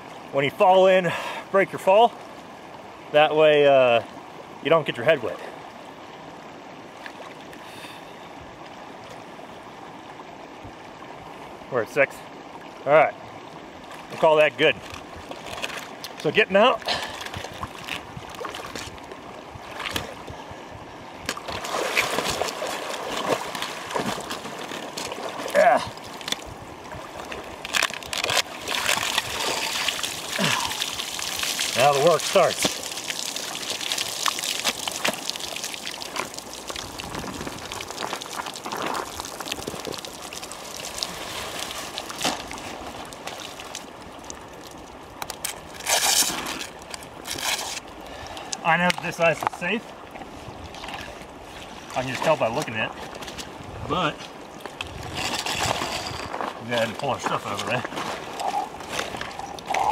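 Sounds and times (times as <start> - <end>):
water sloshing and splashing: 5.6 - 7.6, 12.3 - 59.9
water dripping onto ice: 28.8 - 41.1.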